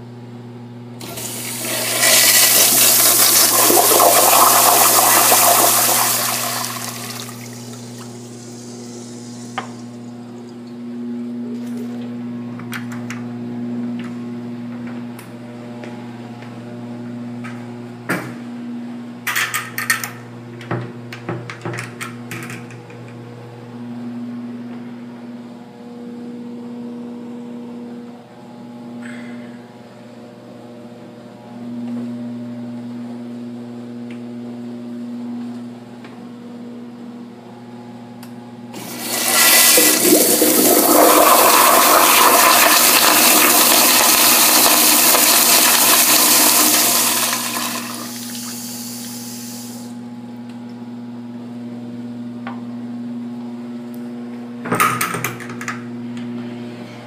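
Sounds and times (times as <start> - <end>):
toilet flushing: 1.0 - 10.0, 38.7 - 49.9
low hum: 6.6 - 11.0.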